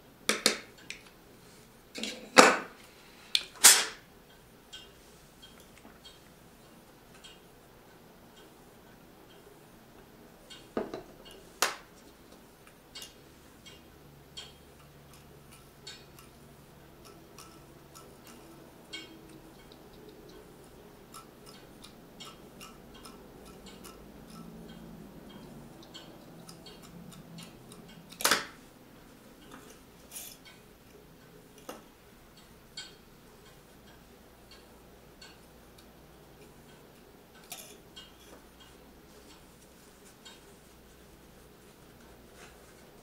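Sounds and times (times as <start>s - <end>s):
loud sharp click: 3.4s - 4.0s.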